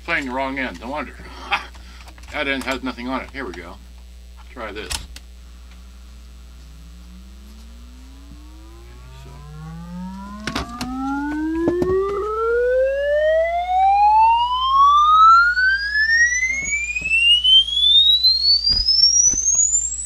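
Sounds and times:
low mains hum: 0.0s - 20.0s
rising test tone sweep: 5.8s - 20.0s.

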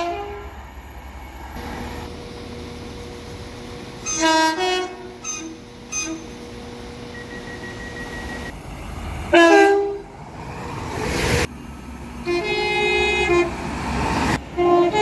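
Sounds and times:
two-tone train horn blasts: 0.0s - 0.6s, 1.6s - 8.5s, 9.3s - 10.2s, 12.2s - 13.6s, 14.4s - 15.0s
train rushing past: 0.0s - 15.0s.

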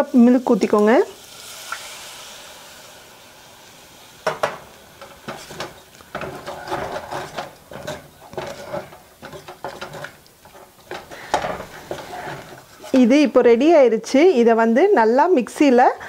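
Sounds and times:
spatula scraping saucepan: 5.0s - 13.3s.

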